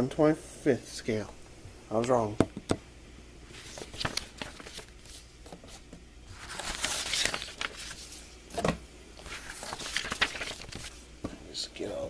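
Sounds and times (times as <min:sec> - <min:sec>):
paper booklets rustling: 0:03.5 - 0:11.0.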